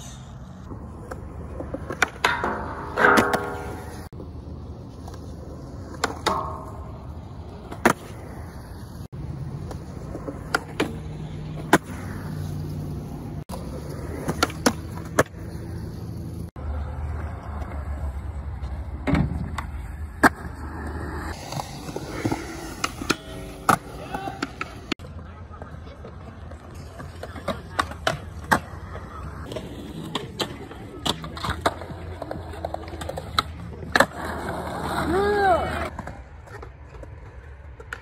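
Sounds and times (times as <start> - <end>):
skateboard wheels rolling on concrete: 0.0 - 38.0
skateboard clacks: 0.7 - 4.2, 5.0 - 8.2, 18.6 - 38.0.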